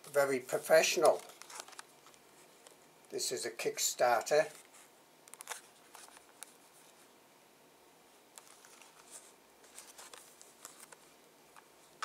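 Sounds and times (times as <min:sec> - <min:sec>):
plastic blister pack crinkling: 0:00.9 - 0:02.8.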